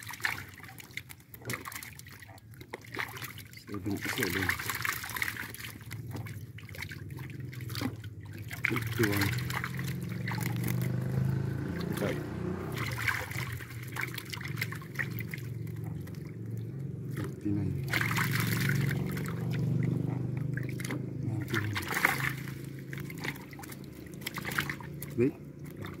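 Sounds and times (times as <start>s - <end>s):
fish thrashing in water: 0.0s - 26.0s
low voices: 21.2s - 21.9s.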